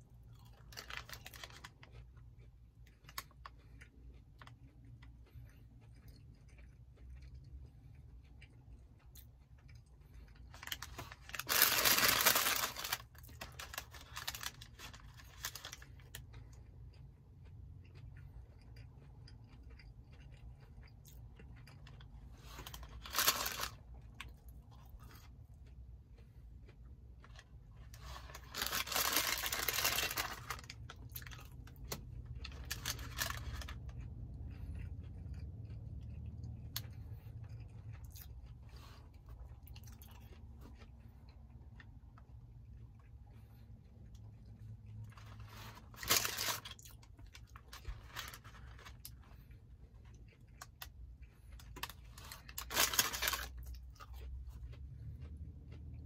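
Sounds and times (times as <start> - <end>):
person chewing: 0.0 - 56.0
paper bag rustling: 10.6 - 15.8, 28.1 - 30.6.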